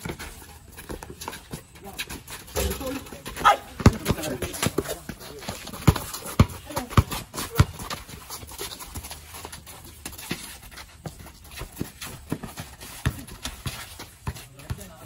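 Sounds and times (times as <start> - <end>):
running footsteps: 0.0 - 15.0
basketball bouncing: 2.4 - 8.2.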